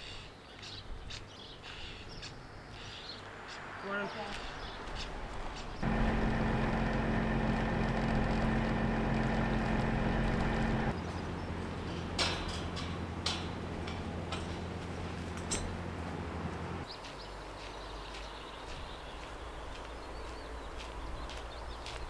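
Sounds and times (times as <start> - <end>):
mechanical hum: 5.8 - 16.8.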